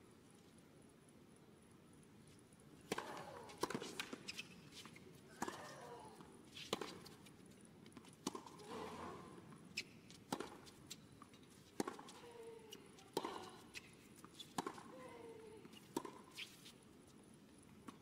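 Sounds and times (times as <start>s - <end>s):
racket striking tennis ball: 2.9s - 4.2s, 8.2s - 10.8s, 11.8s - 12.2s, 14.5s - 14.9s.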